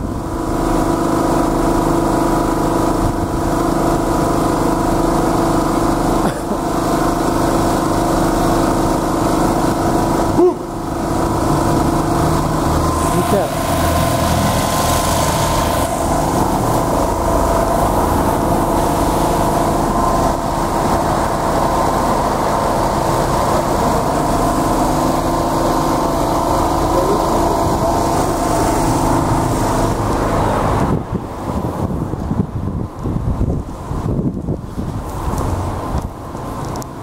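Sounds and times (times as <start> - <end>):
wind noise on microphone: 0.0 - 4.5, 27.6 - 37.0
generator engine humming: 0.0 - 37.0.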